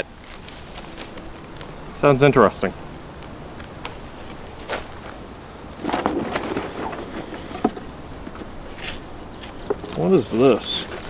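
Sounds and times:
cardboard box rummaging: 5.8s - 9.0s.

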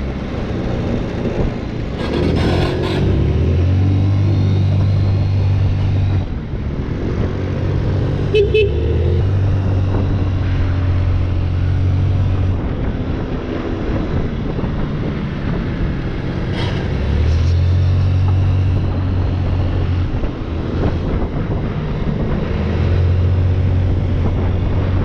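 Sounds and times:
road and wind noise: 0.0s - 25.0s
moped engine droning: 7.7s - 12.7s.

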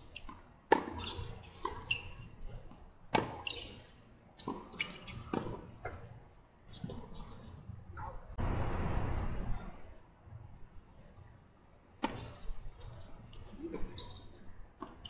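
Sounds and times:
tennis ball bouncing on court: 0.2s - 2.2s, 3.1s - 3.8s, 4.4s - 6.1s, 12.0s - 13.0s.

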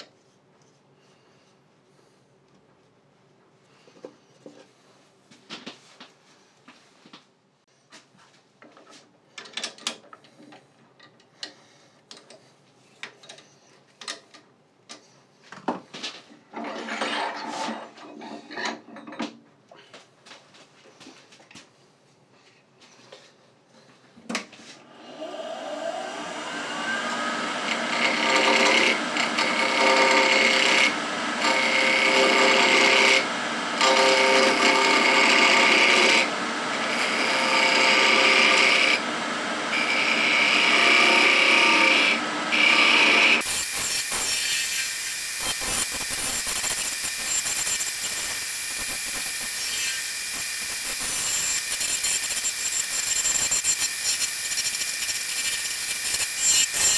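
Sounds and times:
turning tool cutting wood: 24.9s - 56.9s
wood lathe whining: 24.9s - 56.9s.

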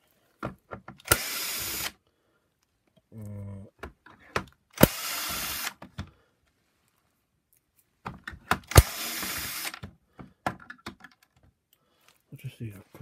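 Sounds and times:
drill trigger click: 1.0s - 1.9s, 4.8s - 5.8s, 8.7s - 9.8s
cordless drill running: 1.0s - 2.0s, 4.8s - 5.8s, 8.7s - 9.8s.

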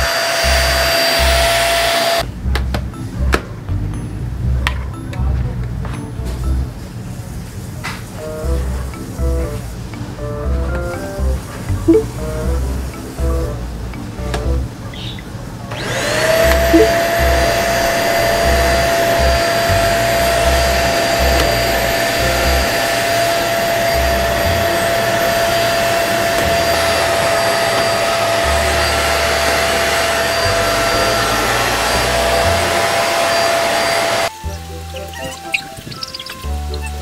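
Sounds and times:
vacuum cleaner motor whining: 0.0s - 2.2s, 15.7s - 34.3s.

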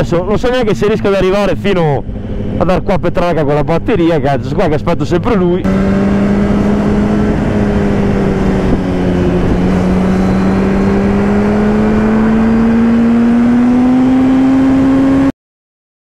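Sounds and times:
wind rush over microphone: 5.6s - 14.2s
motorcycle engine running: 5.6s - 15.3s.

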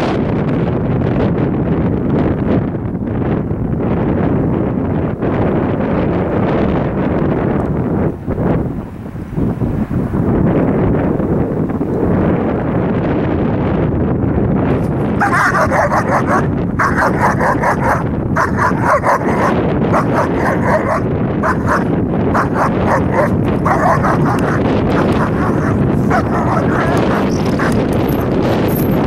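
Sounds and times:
wind on microphone: 0.0s - 29.0s
dog barking: 15.1s - 27.9s.

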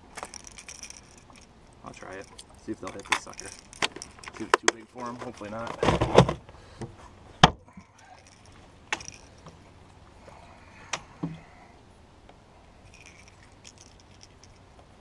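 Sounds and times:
fishing tackle knocking and clicking: 2.1s - 5.8s, 7.8s - 9.6s.

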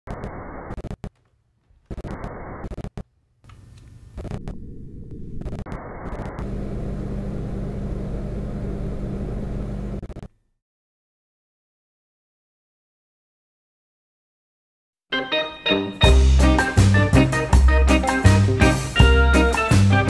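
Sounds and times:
choppy filtered noise: 0.1s - 8.0s
low rumble with hum: 3.6s - 10.2s.

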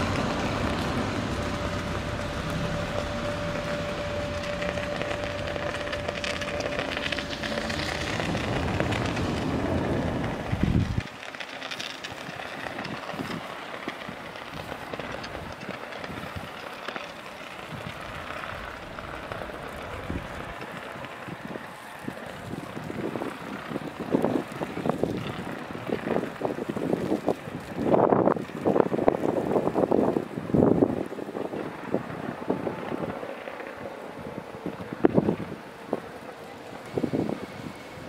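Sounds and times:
train rumbling past: 0.0s - 11.2s.

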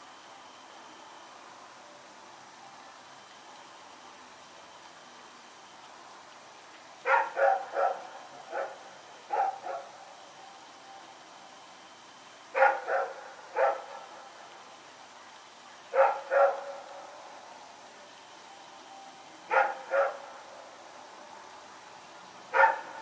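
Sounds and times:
dog barking sharply: 7.1s - 8.0s, 22.6s - 22.8s.

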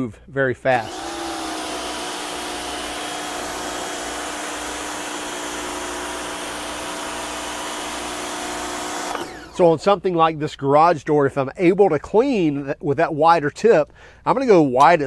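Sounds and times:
pressure washer motor hum: 0.7s - 9.8s.

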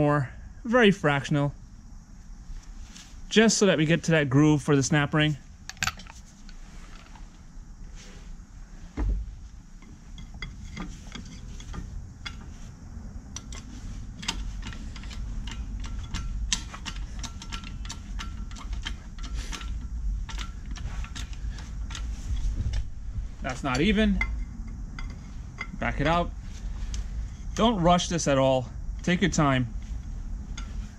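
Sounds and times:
thump: 9.0s - 9.3s.

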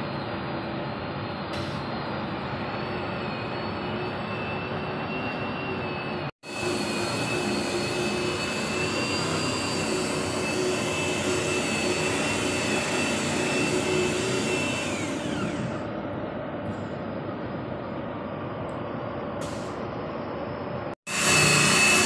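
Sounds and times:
machine whining: 1.5s - 16.0s, 21.1s - 22.0s.

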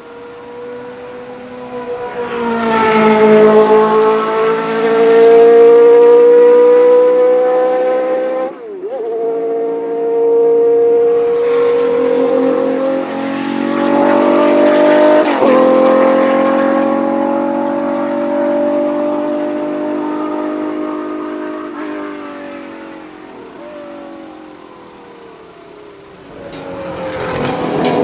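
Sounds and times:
gear change: 0.0s - 28.0s
race car passing: 0.0s - 28.0s
racing engines at full throttle: 0.0s - 28.0s.

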